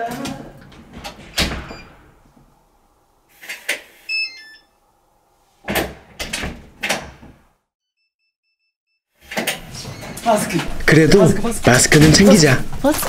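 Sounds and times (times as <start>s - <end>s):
heavy door clunks: 0.0s - 2.5s
electronic lock beeps: 4.0s - 4.7s.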